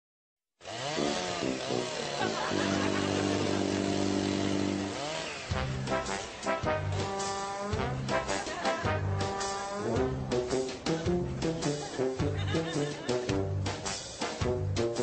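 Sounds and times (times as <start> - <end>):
chainsaw revving: 0.6 - 10.9.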